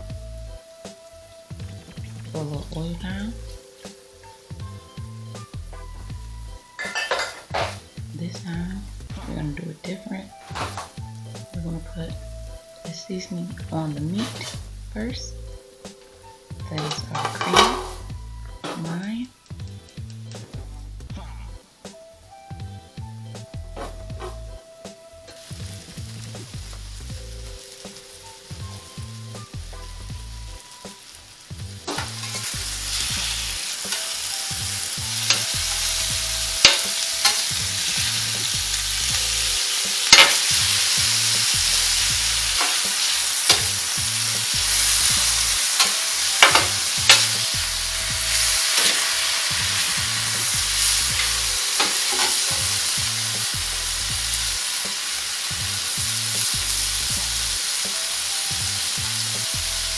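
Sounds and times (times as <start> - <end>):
meat sizzling on a griddle: 0.5 - 8.1, 23.8 - 59.9
metal spatula scraping griddle: 6.8 - 7.5, 14.1 - 14.6, 31.9 - 34.5, 35.1 - 38.3, 44.8 - 50.0, 51.1 - 52.9.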